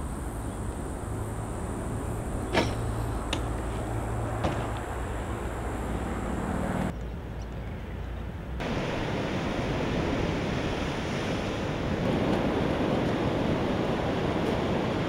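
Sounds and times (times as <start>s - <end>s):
ocean surf washing: 8.6s - 15.0s
wind on microphone: 8.6s - 15.0s.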